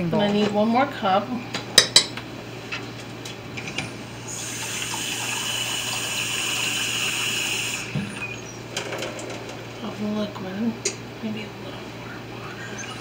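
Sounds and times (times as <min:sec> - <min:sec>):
faucet running water into cup: 0:04.2 - 0:08.6.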